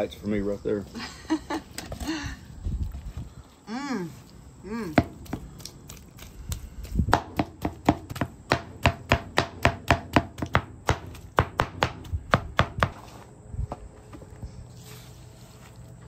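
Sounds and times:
cleaver chopping meat on board: 7.1s - 13.0s.

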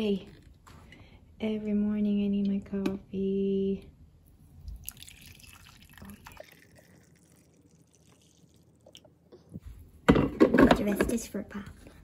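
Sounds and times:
coffee pouring into mug: 4.7s - 9.3s.

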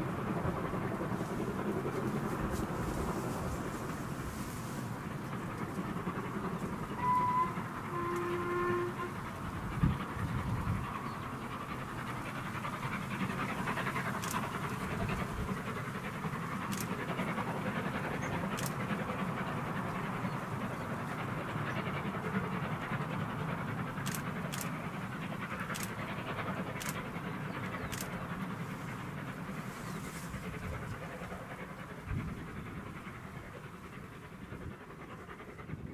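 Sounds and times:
steam locomotive chuffing: 0.0s - 35.9s
wind buffeting microphone: 9.1s - 35.9s
sharp clicks: 14.2s - 14.6s, 16.6s - 17.0s, 18.6s - 18.8s.

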